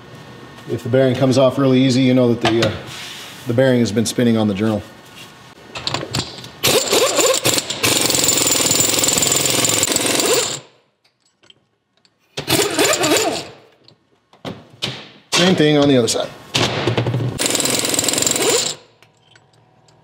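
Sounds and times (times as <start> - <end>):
air impact wrench hammering: 6.6 - 10.8, 12.4 - 13.6, 17.4 - 18.9.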